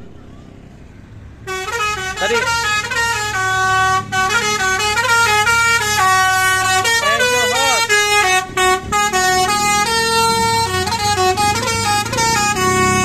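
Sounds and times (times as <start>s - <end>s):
bus engine hum: 0.0s - 13.0s
musical bus horn tune: 1.4s - 13.0s.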